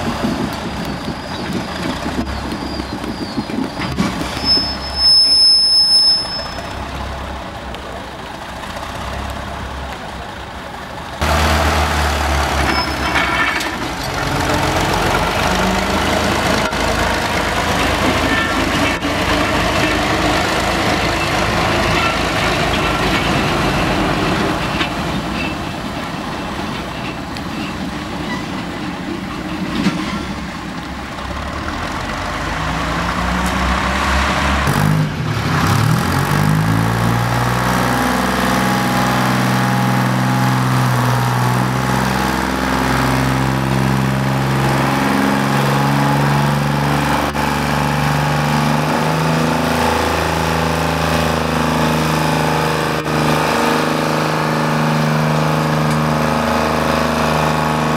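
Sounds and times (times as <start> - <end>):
wheel loader diesel engine: 0.0 - 57.9
diesel locomotive engine running: 6.2 - 57.9.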